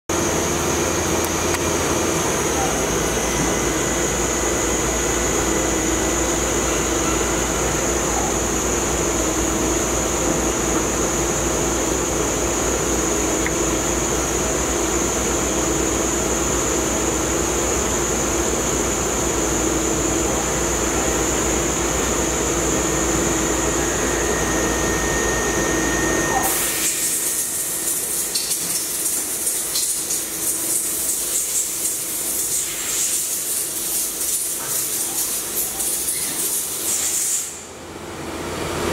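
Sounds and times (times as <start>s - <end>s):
machine hum with high whine: 0.1s - 38.9s
low held tone: 23.5s - 26.5s.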